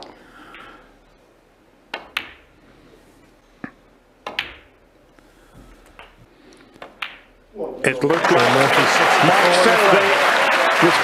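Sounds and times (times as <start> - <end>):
cue striking ball: 1.9 - 2.5, 4.2 - 4.7, 6.8 - 7.3
snooker balls knocking together: 1.9 - 2.5, 3.6 - 4.8, 5.6 - 7.4.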